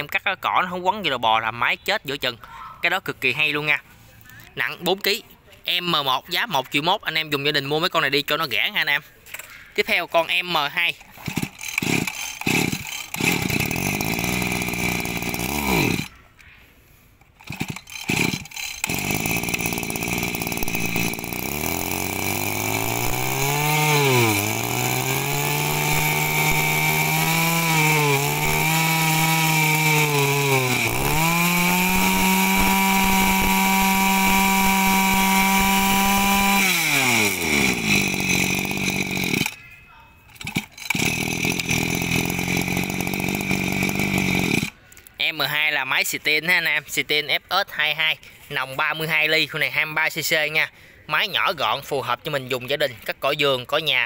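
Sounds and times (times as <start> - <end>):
brush cutter engine revving: 10.2 - 16.2, 17.3 - 39.6, 40.3 - 44.8
starter cord pulls: 11.0 - 16.1, 17.2 - 39.6, 40.3 - 45.1.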